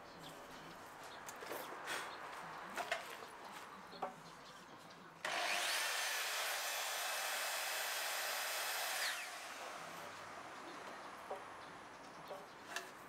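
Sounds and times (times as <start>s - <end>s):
electric power tool motor whirring: 5.2s - 9.9s.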